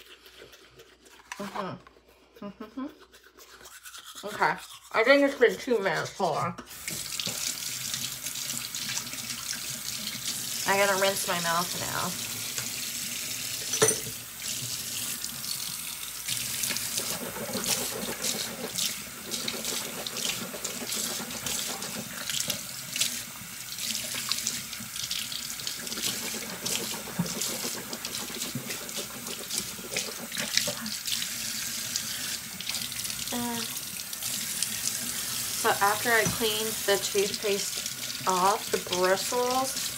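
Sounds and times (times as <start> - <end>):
tap running into sink: 36.0 - 36.6.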